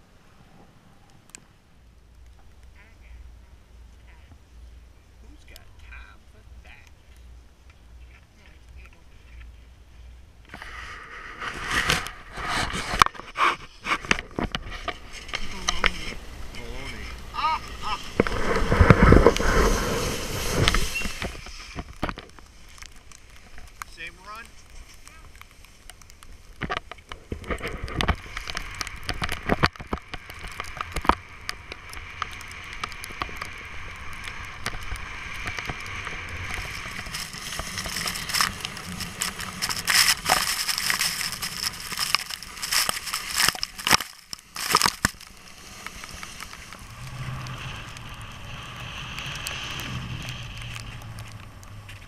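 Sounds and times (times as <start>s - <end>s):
skis scraping over snow: 10.5s - 52.0s.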